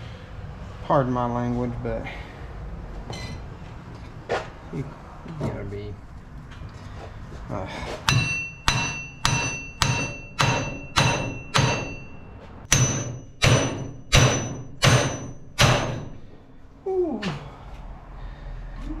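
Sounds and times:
hammer striking metal: 8.1s - 16.4s.

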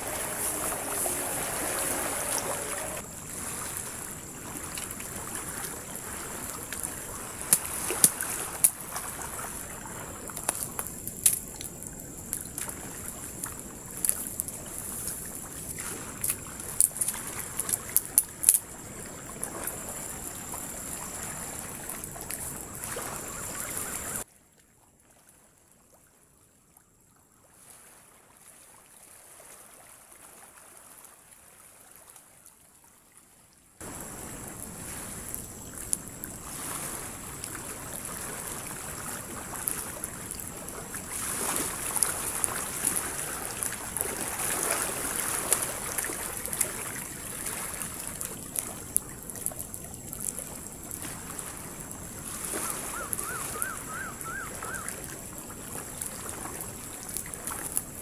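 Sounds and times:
surf: 0.0s - 10.7s
campfire crackling and popping: 5.6s - 9.0s, 10.2s - 22.9s, 33.8s - 58.0s.

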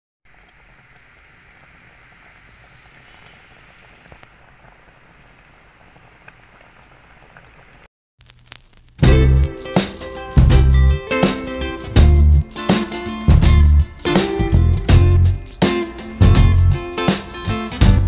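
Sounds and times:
small ticks: 8.2s - 9.0s.

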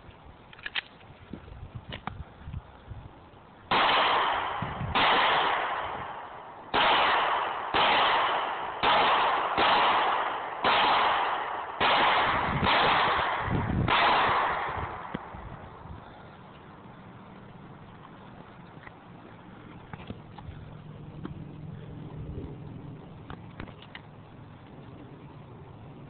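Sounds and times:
pistol shots with echo: 3.7s - 15.4s.

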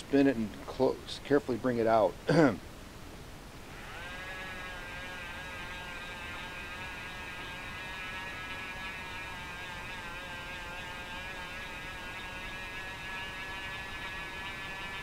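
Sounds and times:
rotary tool motor whine: 3.7s - 15.0s.

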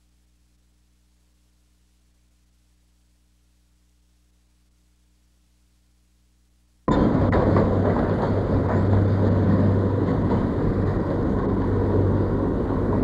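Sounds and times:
electric railcar rumble: 6.9s - 13.0s.

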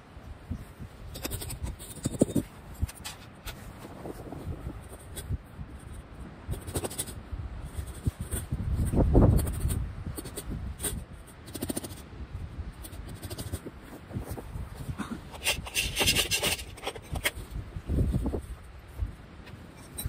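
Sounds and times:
wind buffeting microphone: 0.0s - 20.0s
footsteps crunching in snow: 13.6s - 15.0s.

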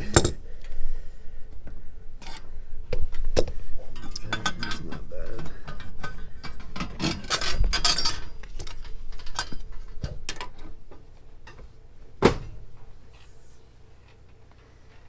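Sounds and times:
metal tools clinking on fittings: 3.9s - 9.7s.

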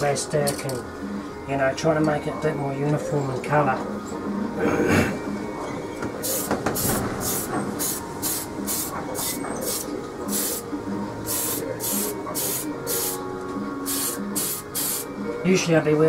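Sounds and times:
aerosol spray can hissing: 6.2s - 10.6s, 11.3s - 13.2s, 13.9s - 15.1s.

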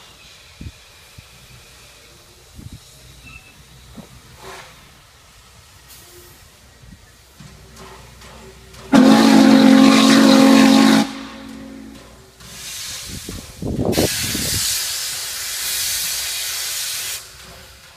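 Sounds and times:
steam whistle low blast: 8.9s - 12.0s
steam hissing loudly: 8.9s - 17.9s.

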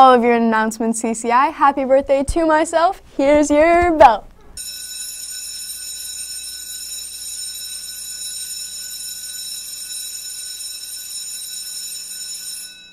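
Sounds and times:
high-pitched ringing tone: 4.6s - 12.9s.

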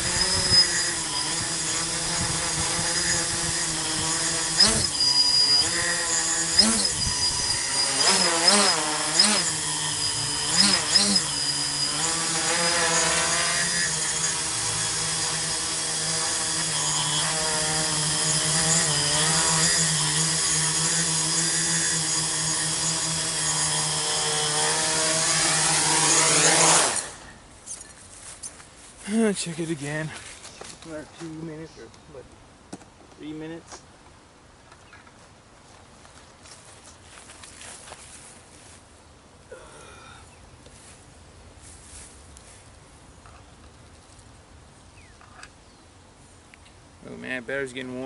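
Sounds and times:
drone motors buzzing: 0.0s - 27.8s.

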